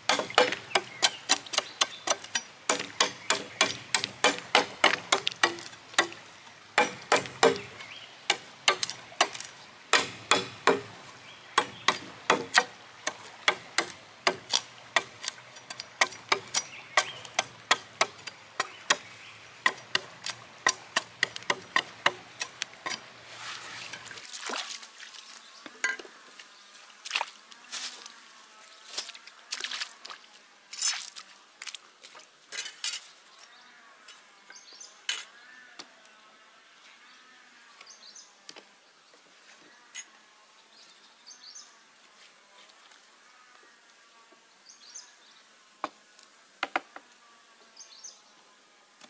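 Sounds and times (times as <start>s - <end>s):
hand tool striking wood: 0.0s - 6.2s, 6.8s - 11.0s, 11.6s - 23.1s.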